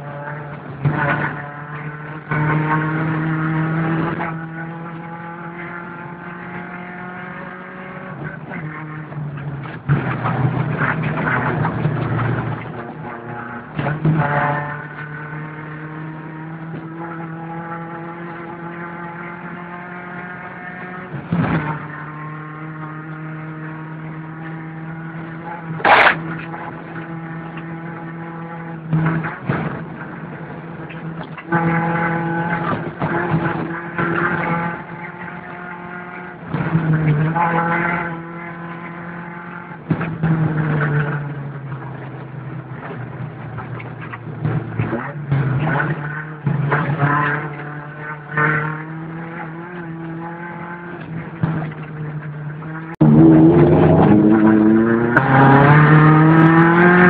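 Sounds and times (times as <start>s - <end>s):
car engine running hard: 0.0s - 57.0s
car rattling over bumps: 0.0s - 57.0s.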